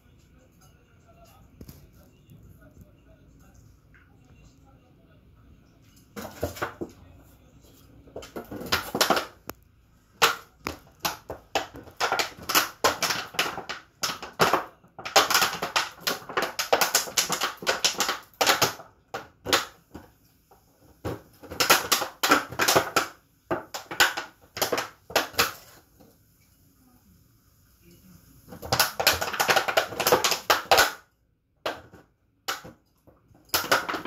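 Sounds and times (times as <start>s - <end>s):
dog chewing plastic bottle: 8.1s - 9.6s, 10.2s - 20.0s, 21.0s - 25.7s, 28.5s - 31.0s, 33.4s - 34.0s.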